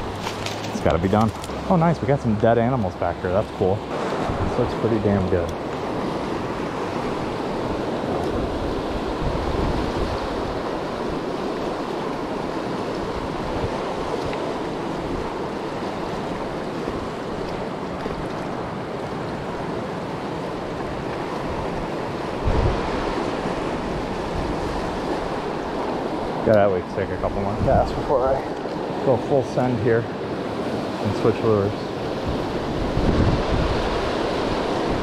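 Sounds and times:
river rushing over rapids: 0.0 - 26.5
wind buffeting microphone: 0.0 - 29.1, 31.8 - 35.0.

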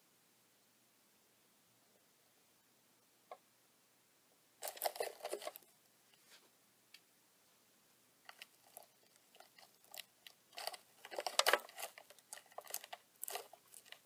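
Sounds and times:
scratchy clicks and rustles: 4.6 - 6.4, 8.3 - 14.0.

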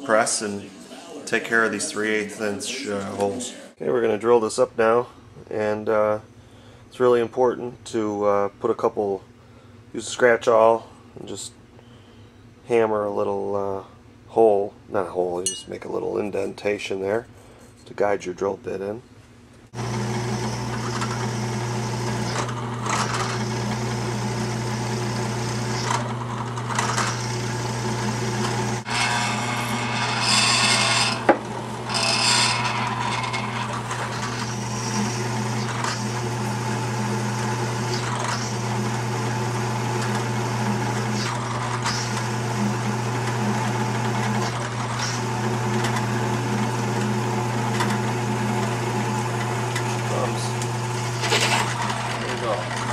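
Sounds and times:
drill bit cutting steel: 19.8 - 52.9
drill press motor hum: 19.8 - 52.9.

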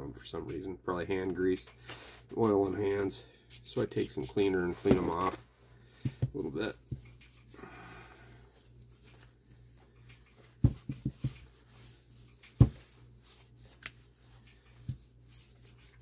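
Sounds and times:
low steady hum: 0.0 - 16.0
tissue rubbing headphones: 6.4 - 16.0.

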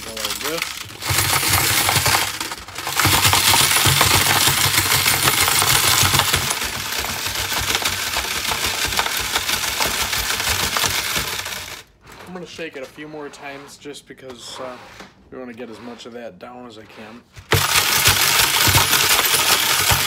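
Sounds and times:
metal parts rattling in a sieve: 0.0 - 12.3, 17.5 - 20.0.

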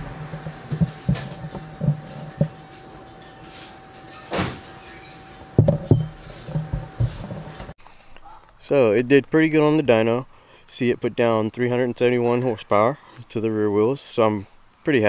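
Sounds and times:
dull knocks and thumps: 0.0 - 2.8, 5.5 - 7.7.

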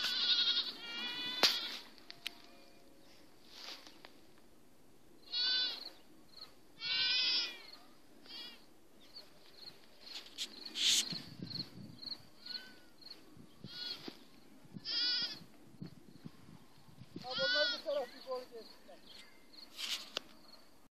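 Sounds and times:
goat kid bleating: 0.0 - 1.9, 5.3 - 5.9, 6.8 - 8.6, 12.4 - 12.9, 13.6 - 14.2, 14.8 - 15.4, 17.2 - 18.2.

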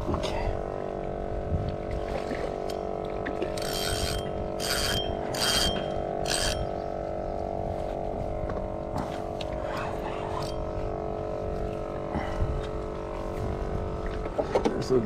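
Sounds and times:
electric trolling motor hum: 0.0 - 15.0
ratcheting mechanical clicking: 3.5 - 6.7.

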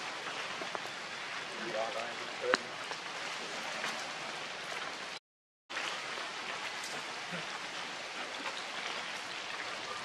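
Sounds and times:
steady rain falling: 0.0 - 10.0
faint taps of raindrops: 0.2 - 0.9, 2.0 - 3.1.

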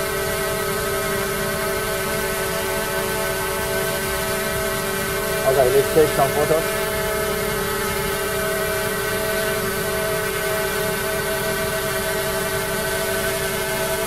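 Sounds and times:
drone propellers whining: 5.0 - 11.5.

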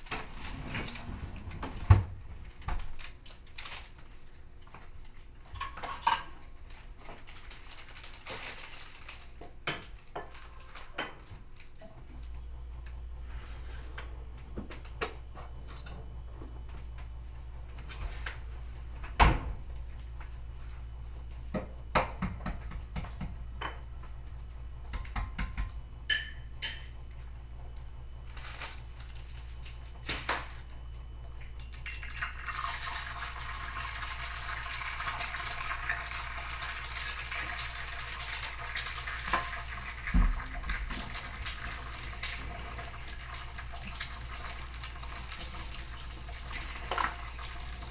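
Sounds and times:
knocks and taps at a pan: 21.5 - 23.8, 24.9 - 26.3
egg sizzling in hot oil: 31.8 - 47.9.

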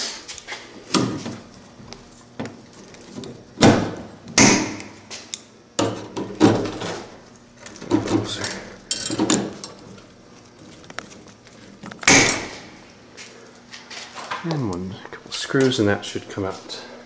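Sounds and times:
rustling insulation: 6.1 - 14.6.

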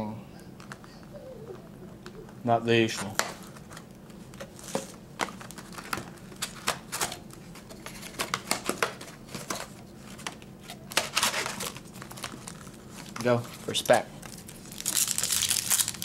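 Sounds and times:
foil packs rustling: 4.5 - 16.0.

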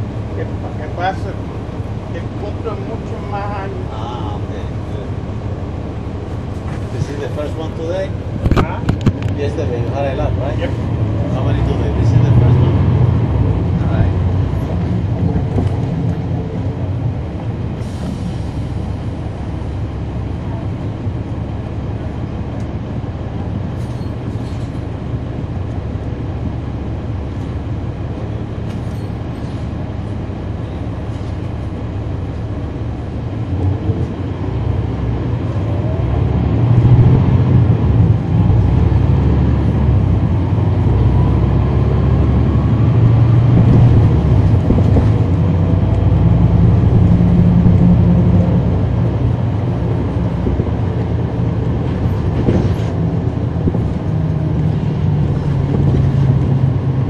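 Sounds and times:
bus diesel engine accelerating: 0.0 - 57.0.

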